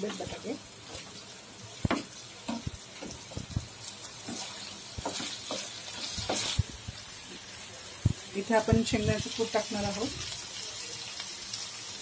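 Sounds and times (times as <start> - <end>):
faint sizzle: 0.0 - 12.0
spatula scraping frying pan: 2.5 - 6.8.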